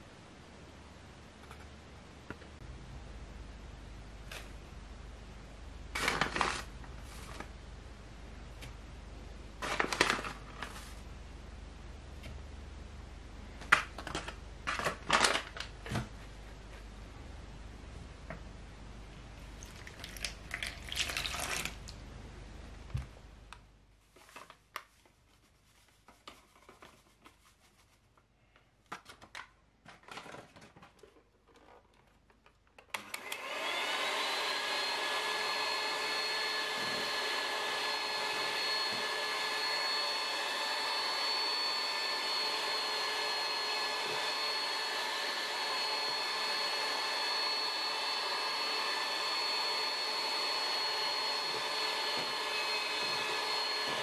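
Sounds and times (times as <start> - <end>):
water pouring into plastic bowl: 19.6 - 22.0
electric hand mixer whining: 33.0 - 54.0.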